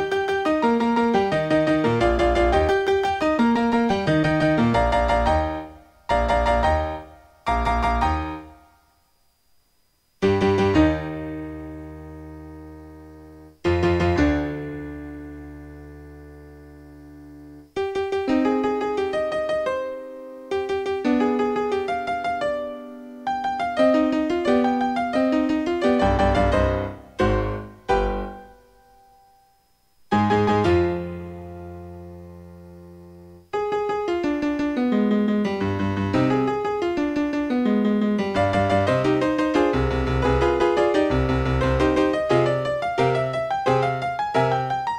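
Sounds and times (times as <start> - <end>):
piano music: 0.0 - 8.6, 10.2 - 44.9.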